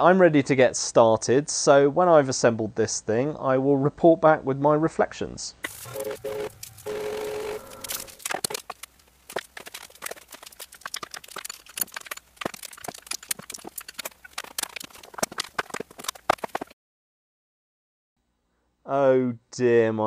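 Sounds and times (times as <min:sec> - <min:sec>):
steady humming tone: 0:05.6 - 0:08.6
parts and tools clattering: 0:07.8 - 0:16.7.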